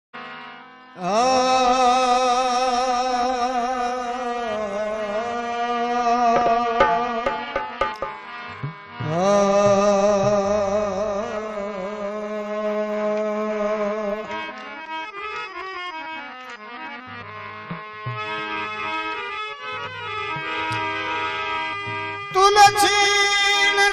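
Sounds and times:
harmonium notes: 0.2s - 23.9s
hand drum strokes: 6.4s - 9.0s.

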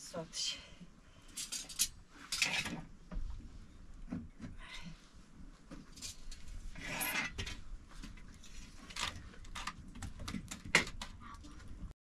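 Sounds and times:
wood and utensils scraping: 1.4s - 2.9s, 6.0s - 7.6s.

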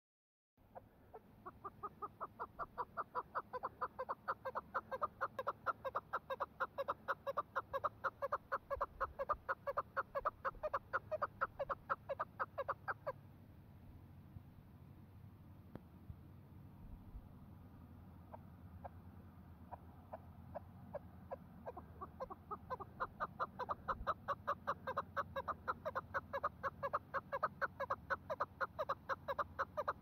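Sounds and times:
partridge calling rapidly: 0.7s - 13.2s, 19.7s - 30.0s.

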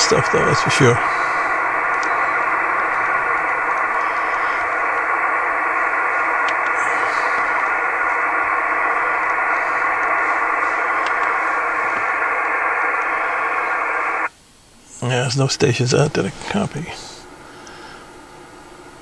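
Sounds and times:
radio static hiss: 0.0s - 19.0s.

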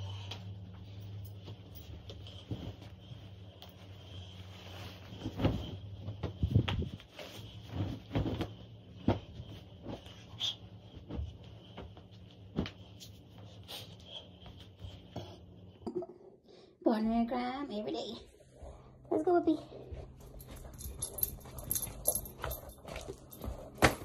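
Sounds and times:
low hum: 0.0s - 24.0s
footsteps: 18.4s - 24.0s.

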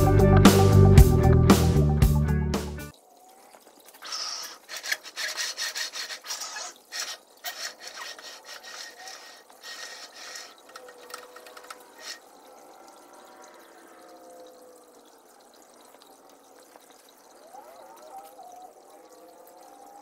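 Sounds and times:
faint trickle of water: 2.9s - 20.0s
irregular scraping and rasping: 3.9s - 12.3s.

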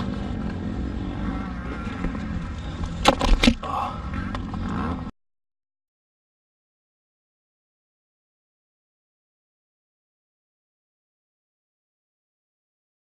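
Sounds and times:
distant motocross bikes droning: 0.0s - 5.1s.

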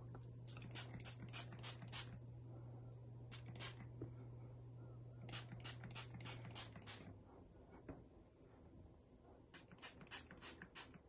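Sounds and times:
steady low hum: 0.0s - 11.0s
spray bottle misting: 0.5s - 2.2s, 3.3s - 3.9s, 5.3s - 7.2s, 9.5s - 11.0s.

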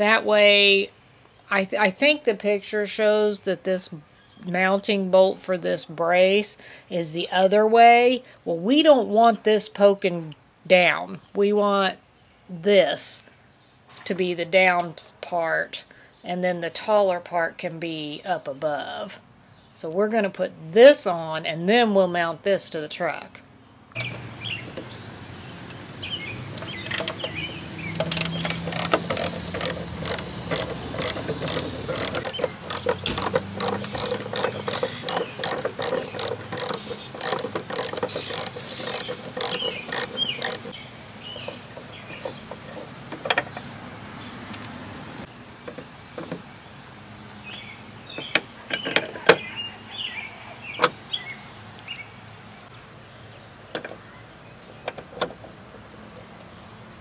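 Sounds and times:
socket ratchet clicking: 26.5s - 40.8s.

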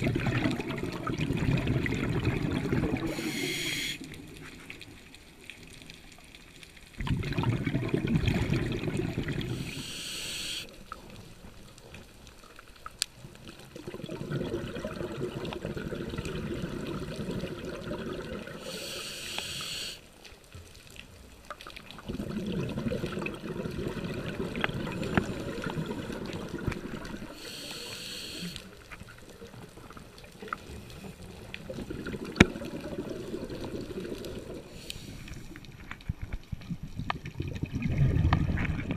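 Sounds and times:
exhaled bubbles rushing underwater: 0.0s - 4.4s, 6.9s - 10.2s, 13.5s - 18.9s, 21.8s - 27.6s, 29.2s - 35.7s, 36.5s - 38.9s
diver inhaling through regulator: 3.0s - 4.1s, 9.5s - 10.7s, 18.6s - 20.0s, 27.3s - 28.7s, 34.7s - 35.5s.

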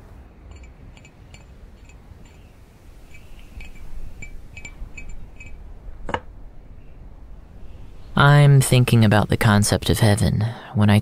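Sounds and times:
low steady hiss: 0.0s - 11.0s
light ringing clinks: 0.4s - 5.7s.

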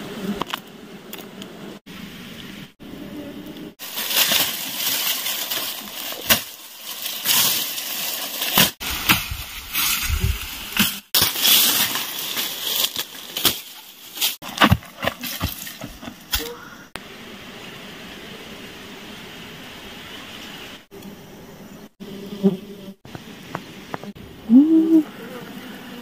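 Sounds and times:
dry grass rustling: 3.8s - 16.4s
grass stalks cracking: 3.8s - 16.5s.

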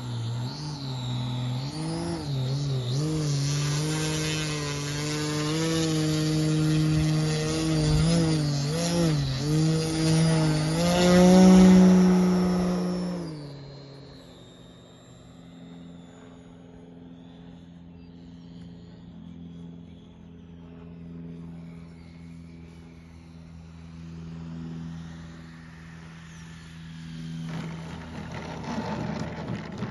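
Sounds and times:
electric plane motor humming: 0.0s - 29.9s
plane wheels rolling on asphalt: 27.6s - 29.9s.

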